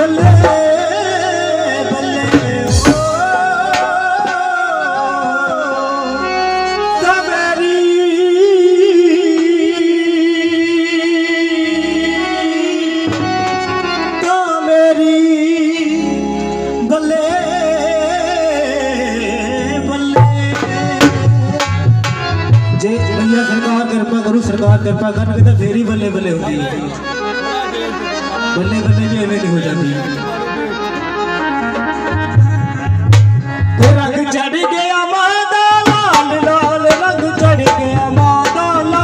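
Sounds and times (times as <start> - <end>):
man singing into microphone: 0.0 - 27.2, 32.2 - 39.0
instrumental backing music: 0.0 - 39.0
hand drum strikes: 2.3 - 4.5, 20.2 - 22.8, 33.1 - 34.0.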